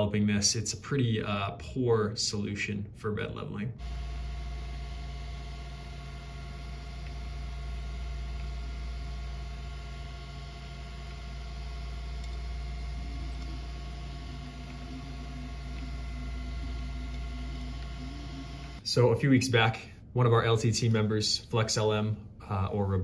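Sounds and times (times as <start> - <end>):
faint wavering low tone: 3.8 - 19.0
faint steady whine tones: 3.8 - 23.0
printer hum and fan noise: 3.8 - 23.0.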